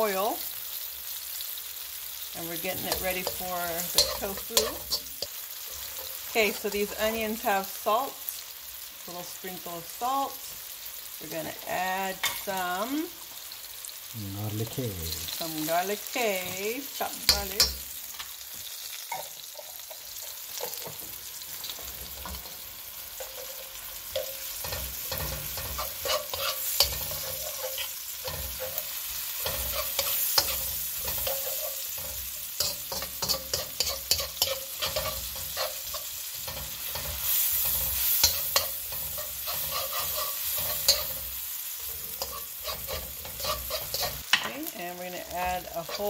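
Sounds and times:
onions sizzling in hot oil: 0.0s - 46.0s
metal spatula scraping a wok: 2.5s - 7.5s, 19.0s - 44.5s, 45.3s - 46.0s.

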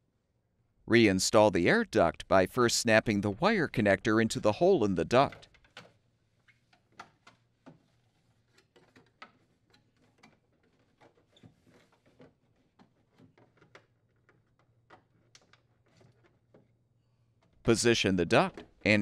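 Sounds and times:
plastic parts clicking and tapping: 5.3s - 6.0s, 6.6s - 16.8s.

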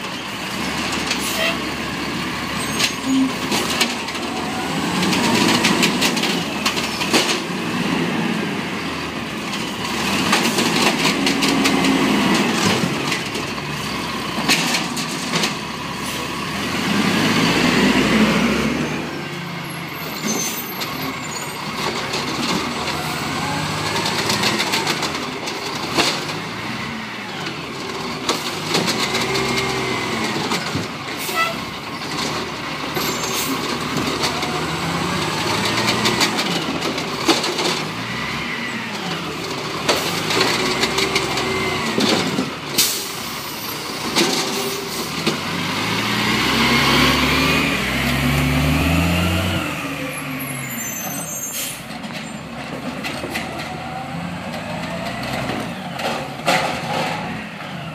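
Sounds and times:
truck engine revving: 0.3s - 57.9s
cart knocking and clanking: 39.4s - 42.6s, 51.9s - 53.8s, 54.6s - 57.4s.

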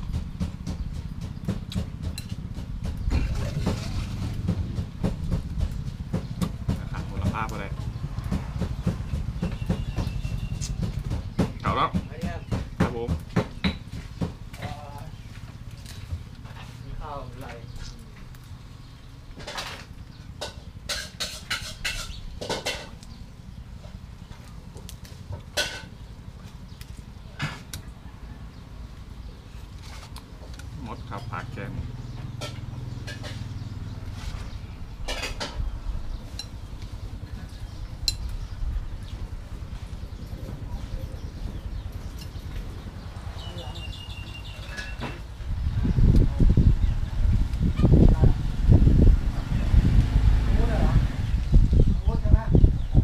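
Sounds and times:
steady low rumble: 34.6s - 43.4s, 45.2s - 53.0s.

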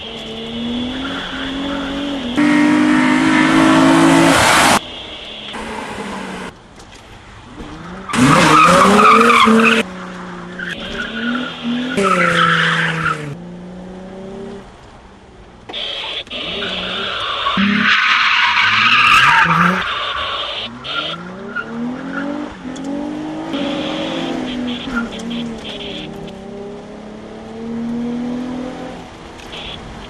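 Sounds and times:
car engine revving: 0.0s - 4.8s, 7.5s - 14.8s, 15.8s - 30.0s
tyres squealing: 15.7s - 22.4s.

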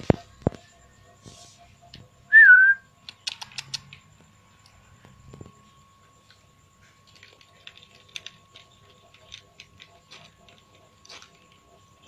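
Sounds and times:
small irregular clicks and ticks: 3.0s - 5.2s, 7.0s - 12.0s.

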